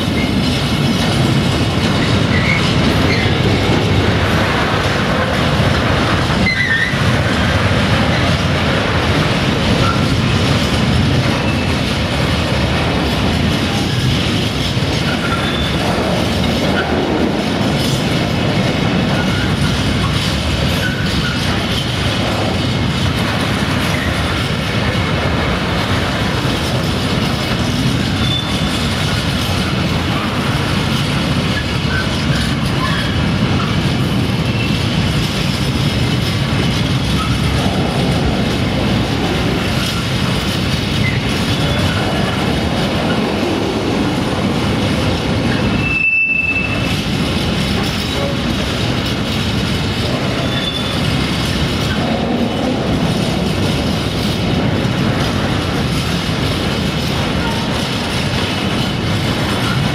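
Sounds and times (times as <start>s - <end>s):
steel wheels rumbling on rail: 0.0s - 59.9s
wheels clacking over rail joints: 0.0s - 59.9s
wheel flanges squealing: 1.9s - 3.8s, 6.4s - 7.3s, 13.7s - 15.9s, 19.0s - 22.2s, 27.4s - 35.0s, 39.8s - 42.4s, 45.4s - 49.4s, 50.2s - 52.1s.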